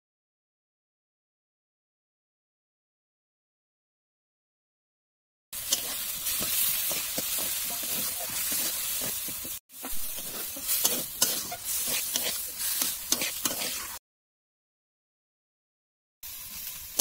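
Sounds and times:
metal spatula scraping pan: 5.6s - 14.0s
spices sizzling in hot oil: 5.6s - 14.0s, 16.2s - 17.0s.

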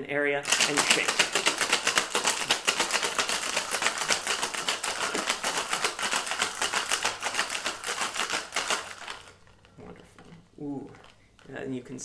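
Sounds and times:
ice rattling in cocktail shaker: 0.4s - 9.8s.

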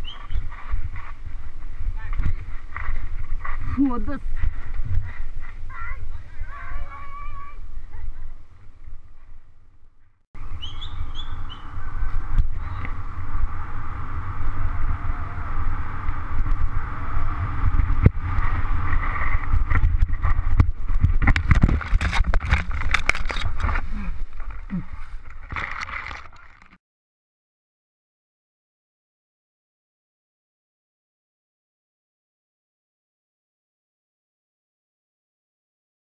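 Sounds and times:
wind and tyres rumble: 0.0s - 26.8s
bike rattling over rocks: 17.7s - 26.8s.

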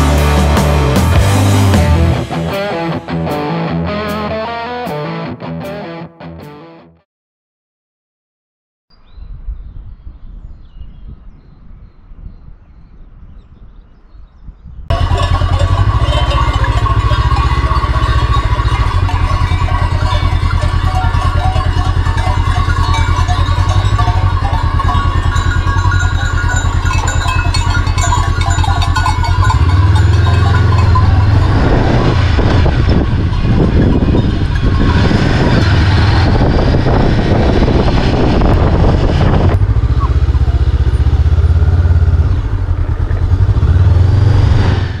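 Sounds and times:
motorcycle engine running: 0.0s - 2.6s, 14.9s - 45.0s
loud rushing noise: 29.7s - 42.0s.

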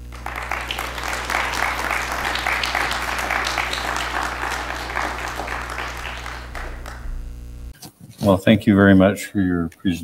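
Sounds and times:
audience applause: 0.0s - 7.2s
low electrical hum: 0.0s - 7.8s.

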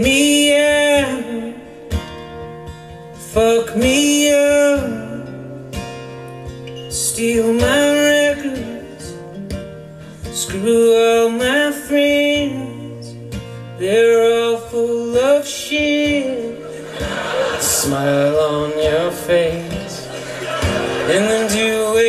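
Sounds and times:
plucked acoustic guitar: 0.0s - 22.0s
person singing: 6.9s - 9.2s, 17.6s - 22.0s.

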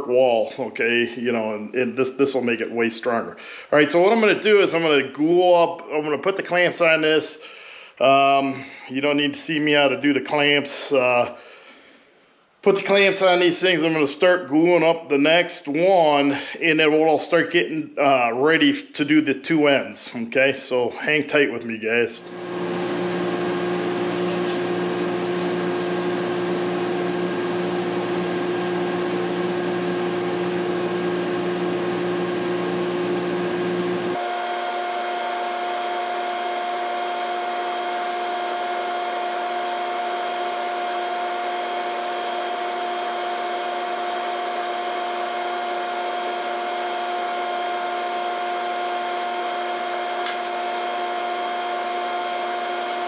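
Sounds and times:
mechanical fan whir: 27.3s - 53.0s.

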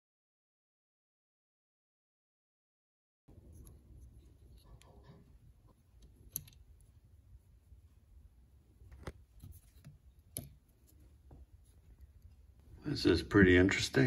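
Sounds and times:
metal parts clicking: 6.0s - 6.9s.

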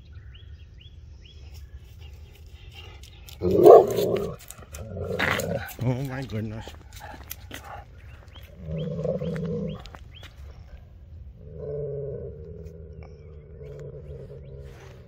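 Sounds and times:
dog growling: 2.9s - 10.0s, 11.3s - 15.0s.

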